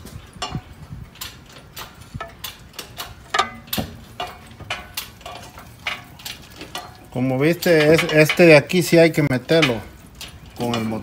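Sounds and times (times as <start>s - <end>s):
lifting chain clinking: 0.0s - 11.0s.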